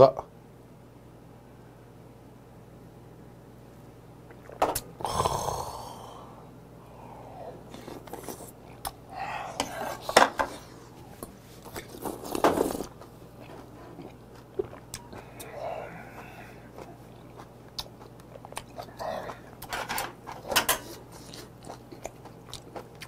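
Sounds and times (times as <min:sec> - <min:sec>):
man exhaling loudly: 0:05.0 - 0:07.6.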